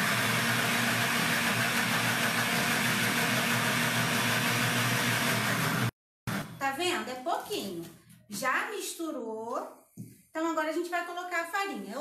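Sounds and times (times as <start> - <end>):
electric blender running: 0.0 - 6.0.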